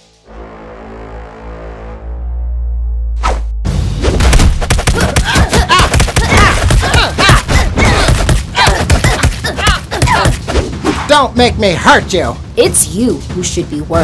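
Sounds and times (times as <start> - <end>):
cartoon punch and kick impacts: 3.2 - 10.8.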